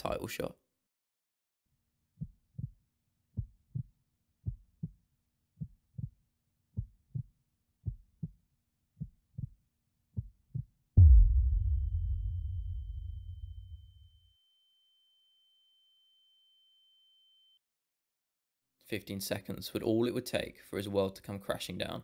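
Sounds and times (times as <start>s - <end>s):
heartbeat thumps: 2.2s - 2.8s, 3.4s - 5.0s, 5.6s - 6.2s, 6.8s - 8.4s, 9.0s - 9.6s, 10.2s - 13.0s
deep boom: 11.0s - 14.1s
faint high ringing tone: 12.6s - 17.6s.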